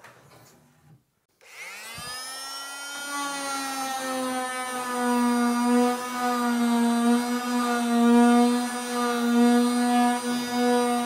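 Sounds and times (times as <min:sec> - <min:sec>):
oscillating multi-tool sanding wood: 0:01.4 - 0:11.0.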